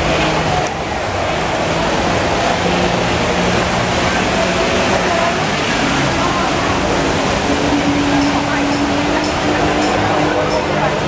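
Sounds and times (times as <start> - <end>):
pump engine hum: 0.0 - 11.0
water jets spraying: 0.0 - 11.0.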